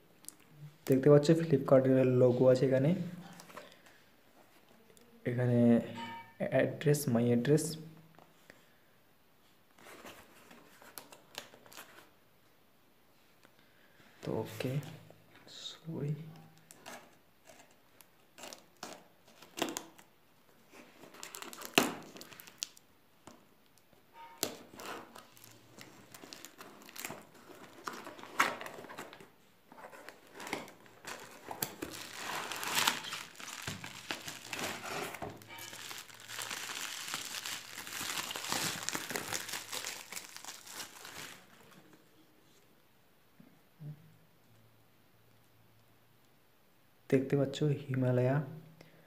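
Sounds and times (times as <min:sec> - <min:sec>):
bubble wrap crinkling: 0:16.6 - 0:20.1, 0:20.7 - 0:22.9, 0:23.7 - 0:42.0.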